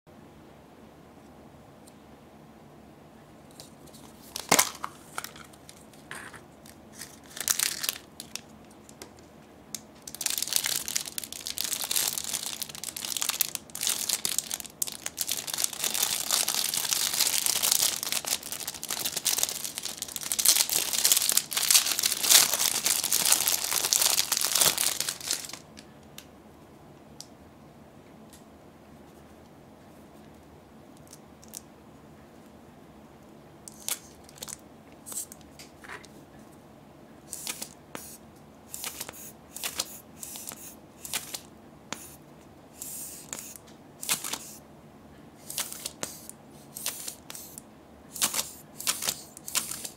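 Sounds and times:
plastic bag crinkling: 4.0s - 6.1s, 6.7s - 9.1s, 10.0s - 25.8s, 33.8s - 34.6s.

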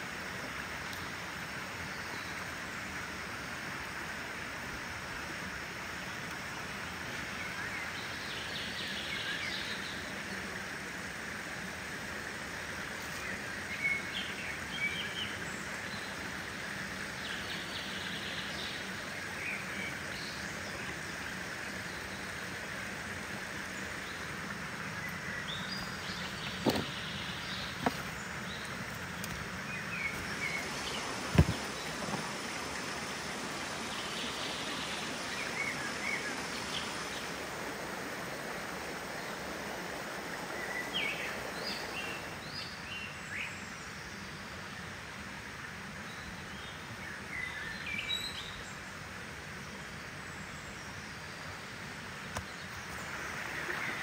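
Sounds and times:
outdoor rushing hiss: 8.0s - 42.7s
birds chirping: 23.3s - 43.6s.

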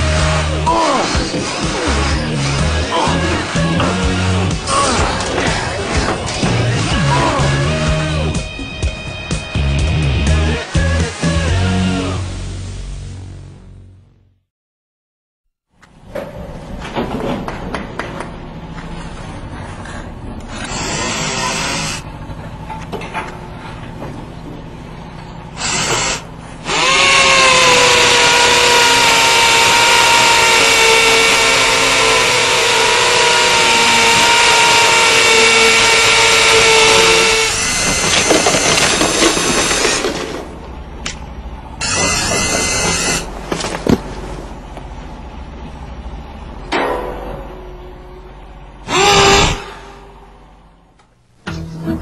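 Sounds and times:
power tool whining: 20.5s - 22.0s, 25.6s - 40.4s, 41.8s - 43.8s, 48.8s - 50.0s.

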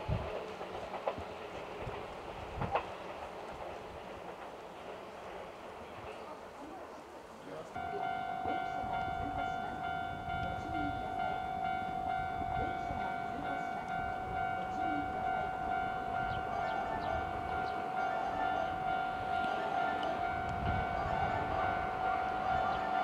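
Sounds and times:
electric train rumbling on rails: 0.0s - 23.0s
level-crossing alarm ringing: 7.8s - 23.0s.

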